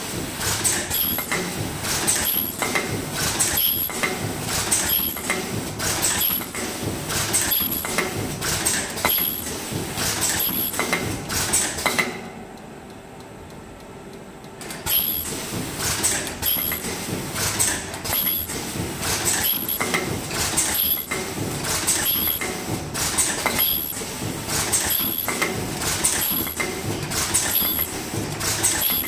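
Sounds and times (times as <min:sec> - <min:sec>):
faint machine hum: 0:00.0 - 0:29.0
machine clicking and clacking: 0:00.0 - 0:29.0.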